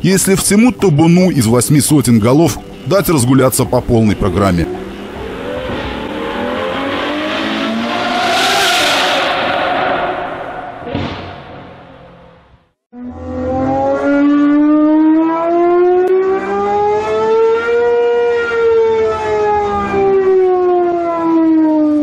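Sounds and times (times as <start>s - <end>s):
engine revving on a dynamometer: 5.0s - 10.0s, 13.0s - 18.6s.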